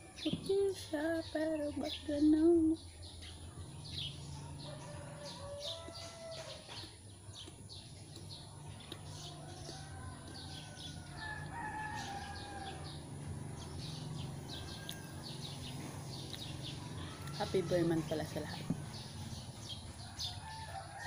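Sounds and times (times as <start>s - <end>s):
small birds chirping: 0.0s - 21.0s
rooster crowing: 4.3s - 6.8s, 9.2s - 13.2s, 14.4s - 15.6s, 20.0s - 21.0s.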